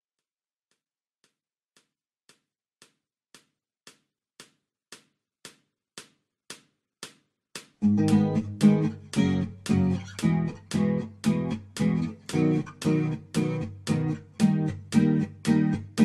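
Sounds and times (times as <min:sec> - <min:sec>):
steady percussive ticking beat: 0:07.6 - 0:16.0.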